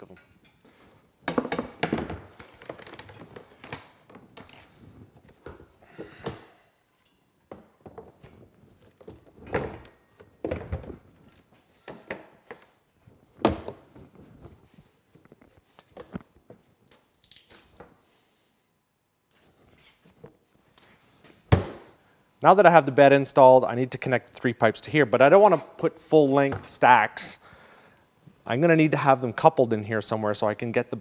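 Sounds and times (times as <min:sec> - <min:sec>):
knocks and thuds of parts handled: 0:01.2 - 0:04.6, 0:07.4 - 0:12.7, 0:21.5 - 0:21.9.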